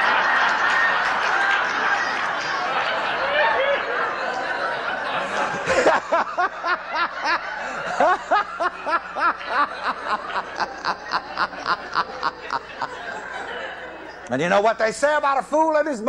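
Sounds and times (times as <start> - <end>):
person laughing: 5.4 - 13.0.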